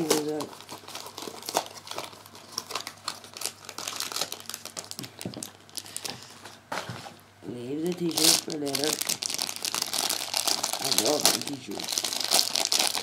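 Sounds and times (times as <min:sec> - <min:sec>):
plastic wrapping crinkling: 0:00.0 - 0:06.6, 0:07.8 - 0:13.0.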